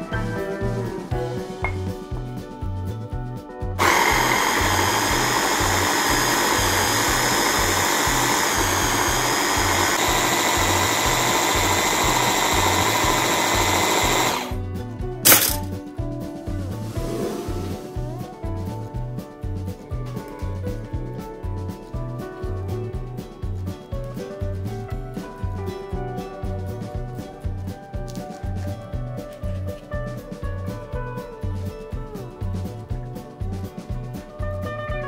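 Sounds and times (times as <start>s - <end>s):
electric chopper blending: 3.8s - 14.6s, 15.3s - 15.7s.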